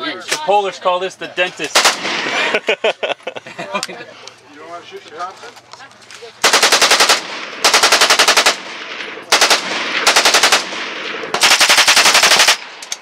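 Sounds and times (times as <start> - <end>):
machine pistol automatic bursts: 1.7 - 2.2, 6.4 - 13.0.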